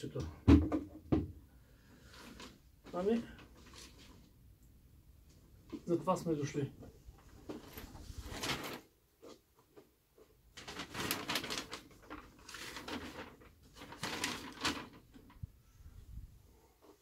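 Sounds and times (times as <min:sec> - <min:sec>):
paper rustling and crinkling: 0:02.0 - 0:04.4, 0:07.2 - 0:15.5.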